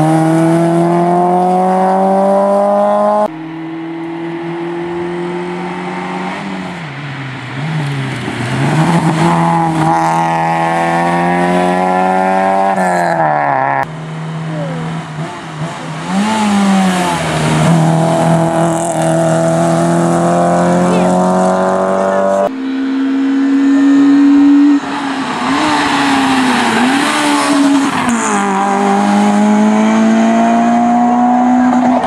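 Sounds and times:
rally car engines revving: 0.0s - 32.0s.

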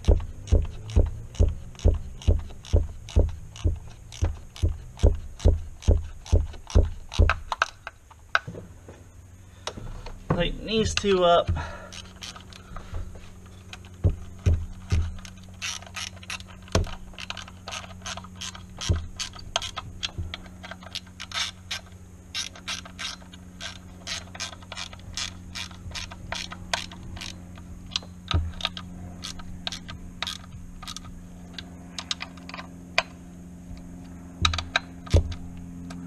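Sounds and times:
tool knocking against metal: 0.0s - 7.7s, 14.0s - 15.3s
ratchet wrench clicking: 0.0s - 8.4s, 10.8s - 12.8s, 13.4s - 36.0s.

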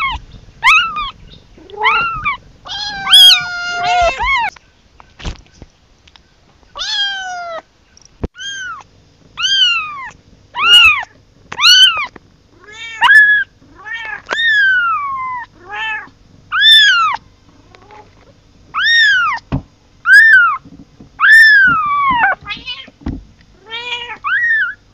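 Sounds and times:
kitten meowing: 0.0s - 4.5s, 6.8s - 7.6s, 8.4s - 18.0s, 18.7s - 19.4s, 20.0s - 20.6s, 21.2s - 22.9s, 23.6s - 24.8s.

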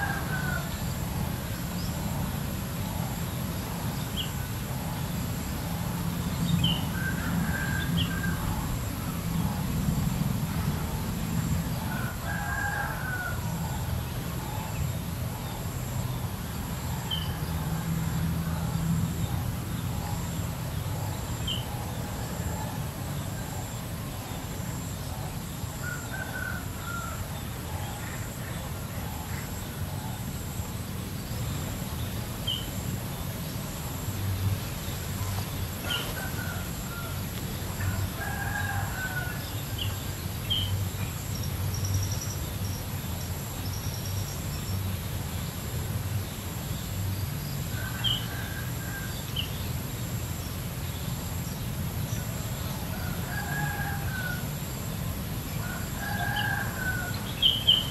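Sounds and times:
rooster crowing: 0.0s - 1.0s, 11.8s - 13.7s, 35.8s - 40.0s, 52.8s - 54.8s, 55.6s - 57.9s.

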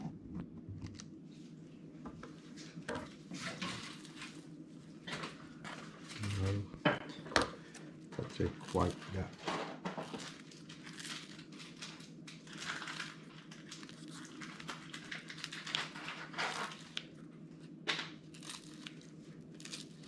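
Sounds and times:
low steady hum: 0.0s - 20.0s
scissors cutting crunchy breadsticks: 8.3s - 9.2s, 18.4s - 20.0s.

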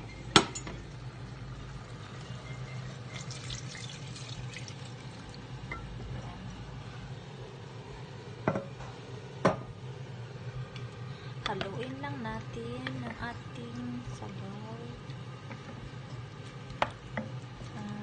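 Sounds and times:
steady low hum: 0.0s - 18.0s
liquid pouring into pot: 0.9s - 6.0s.

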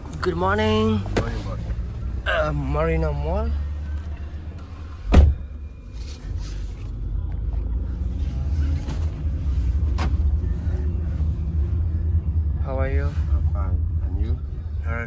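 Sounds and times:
loud thump: 5.1s - 5.5s.

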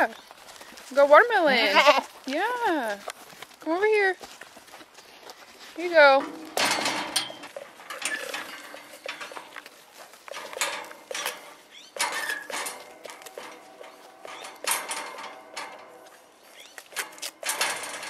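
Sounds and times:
goats crunching watermelon rind: 0.0s - 6.6s, 7.5s - 14.5s
knocks and clanks on metal rails: 6.0s - 18.0s.

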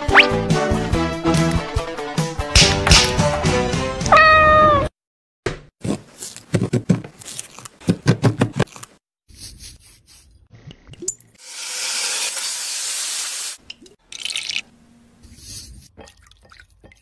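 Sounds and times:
cat meowing: 4.1s - 4.9s.

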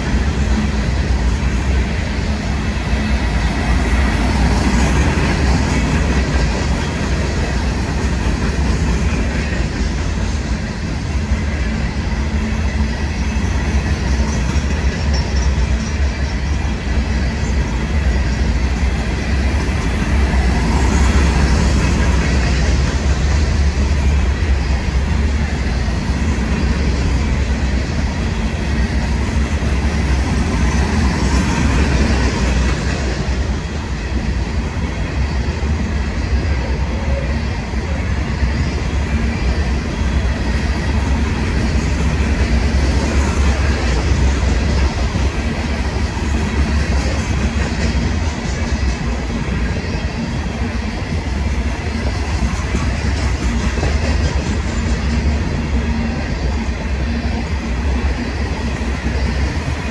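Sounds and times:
freight train wheels rumbling: 0.0s - 59.9s.

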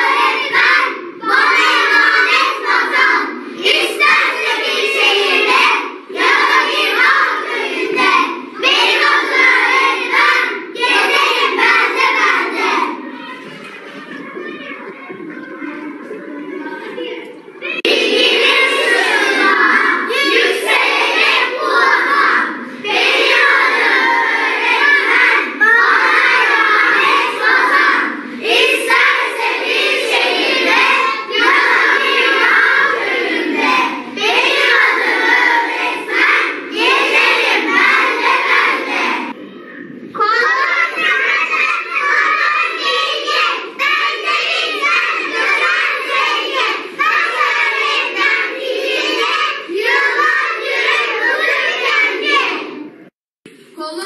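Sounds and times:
children singing in unison: 0.0s - 53.1s.

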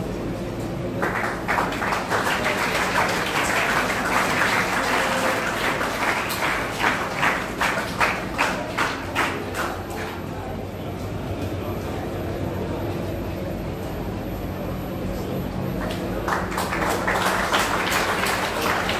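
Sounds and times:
audience applauding: 1.0s - 9.9s, 15.8s - 18.9s.

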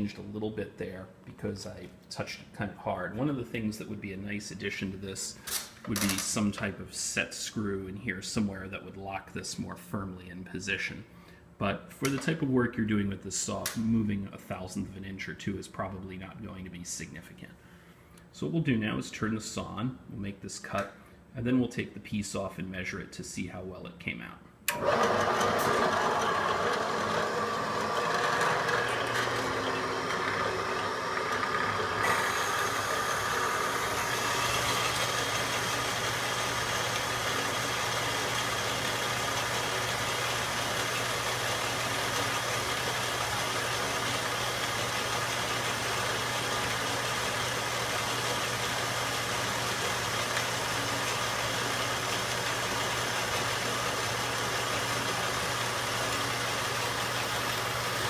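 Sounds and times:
bandsaw motor hum: 24.7s - 58.0s.

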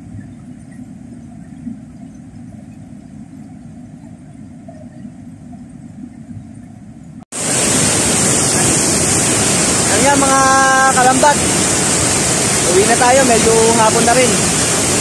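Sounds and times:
loud hissing rush: 7.3s - 15.0s
fast-flowing river rushing: 7.4s - 15.0s.

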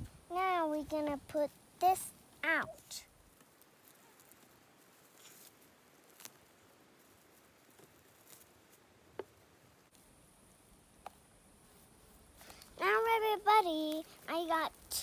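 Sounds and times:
hands digging through soil: 2.8s - 8.8s.

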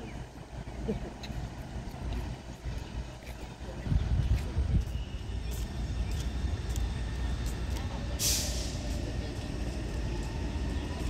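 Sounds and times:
faint train motor whine: 0.0s - 11.0s
low rumble of traffic: 0.0s - 11.0s
hiss of released air: 8.2s - 8.9s.

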